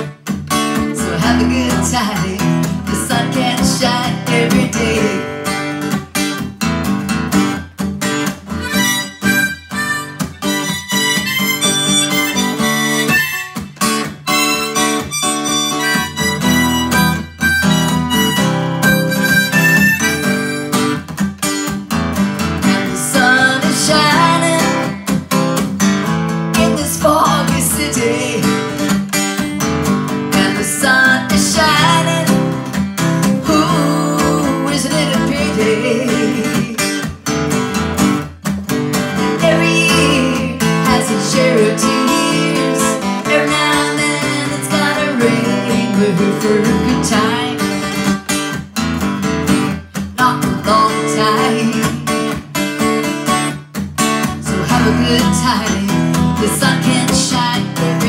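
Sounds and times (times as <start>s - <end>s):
acoustic guitar strumming: 0.0s - 58.0s
harmonica playing melody: 8.5s - 21.2s.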